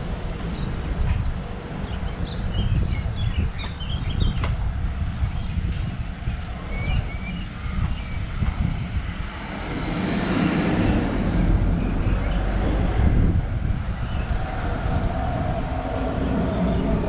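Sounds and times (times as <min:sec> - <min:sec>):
vehicle passing by: 0:09.1 - 0:17.0.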